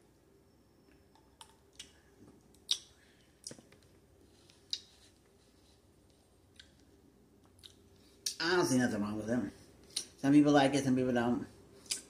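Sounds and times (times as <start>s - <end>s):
mouth clicks sipping and chewing: 1.1s - 3.7s.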